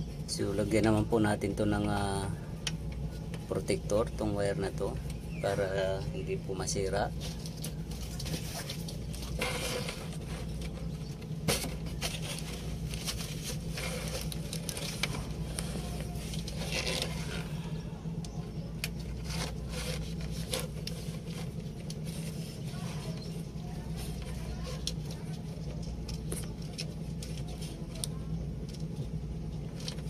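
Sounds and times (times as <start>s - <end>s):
steady low hum: 0.0s - 30.0s
plastic scraping: 6.6s - 17.8s, 18.6s - 29.0s.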